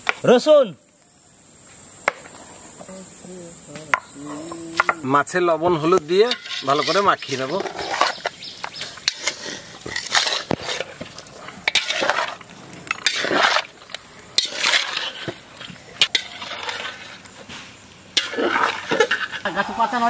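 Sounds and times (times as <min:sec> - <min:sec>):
wet scraping of fish in bowl: 0:06.3 - 0:17.6, 0:18.2 - 0:19.4.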